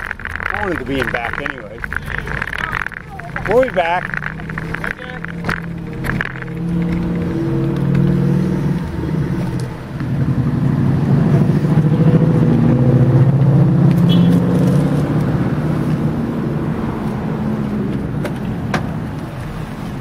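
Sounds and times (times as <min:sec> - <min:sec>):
car engine idling: 0:00.0 - 0:14.3.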